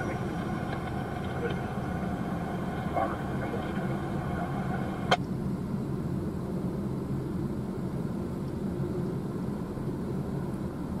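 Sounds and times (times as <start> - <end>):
train wheels on rail: 0.0 - 5.2.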